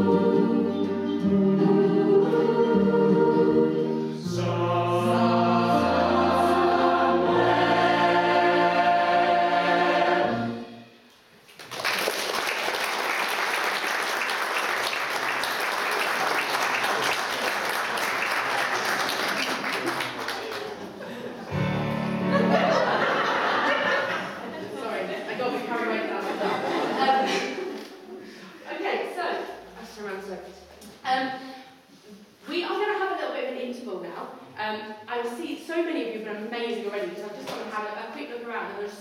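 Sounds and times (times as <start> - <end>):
choir singing held chords: 0.0 - 11.1, 21.2 - 24.6
audience applauding: 11.5 - 21.2.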